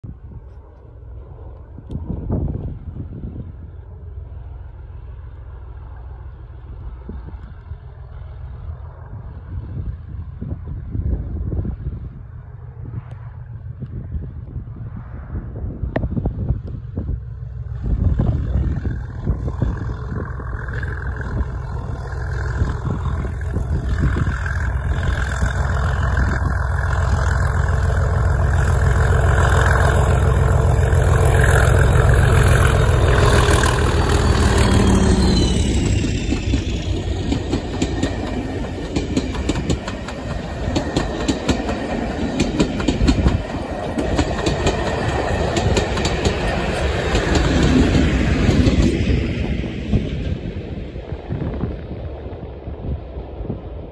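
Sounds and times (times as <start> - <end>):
diesel locomotive engine rumble: 0.0 - 53.9
train wheels clickety-clack: 18.1 - 51.0.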